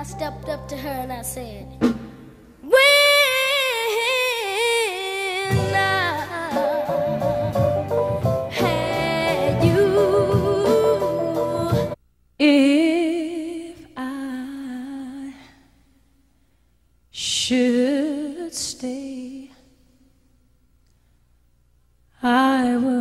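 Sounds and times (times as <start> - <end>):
woman singing a cappella: 2.6 - 7.0, 8.5 - 15.7, 17.2 - 19.8, 22.2 - 23.0
boy singing pop ballad with band: 2.7 - 7.2, 8.5 - 12.0.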